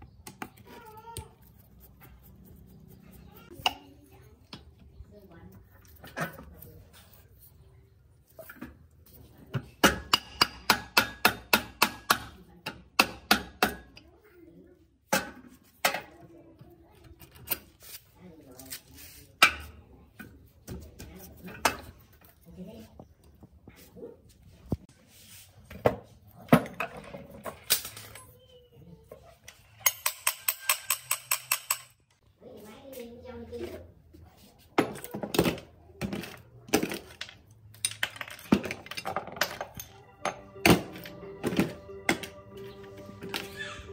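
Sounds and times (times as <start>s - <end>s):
metal parts knocking and clinking: 36.1s - 42.3s.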